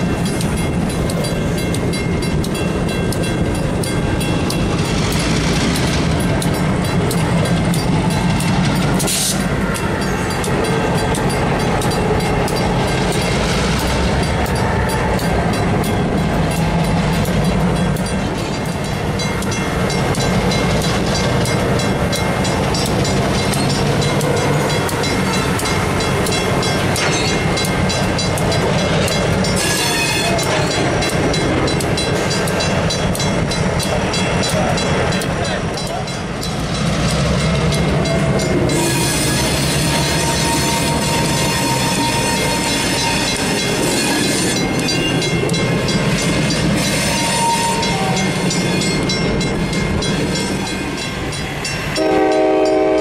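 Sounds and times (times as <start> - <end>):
fine regular ticking: 0.0 - 29.6, 30.3 - 38.8
freight cars rolling: 0.0 - 52.7
diesel locomotive engines droning: 0.0 - 53.0.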